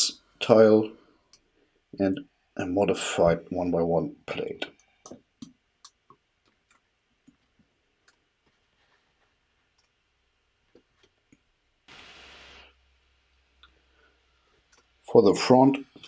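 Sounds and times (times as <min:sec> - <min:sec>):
soft hiss: 0:06.8 - 0:16.0.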